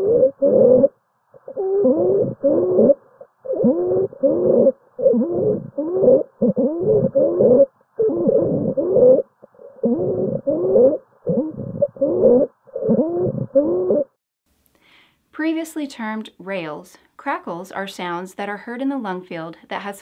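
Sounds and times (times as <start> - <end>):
person breathing with stridor: 0.0 - 0.9, 1.5 - 13.4, 14.7 - 15.2.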